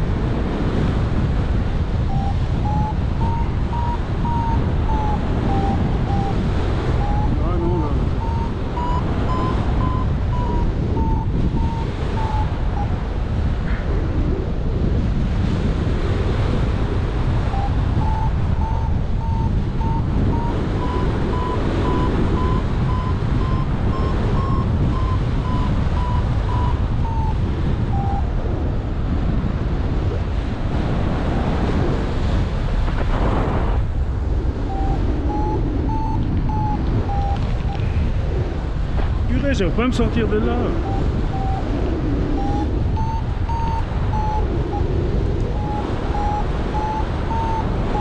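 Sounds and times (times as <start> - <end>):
wind rushing over microphone: 0.0 - 48.0
variometer beeping: 2.0 - 13.1, 17.1 - 28.6, 34.6 - 37.9, 40.0 - 48.0.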